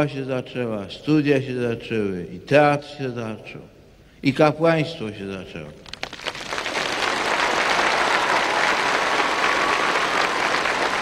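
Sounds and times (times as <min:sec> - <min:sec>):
large crowd applauding: 0:05.8 - 0:11.0.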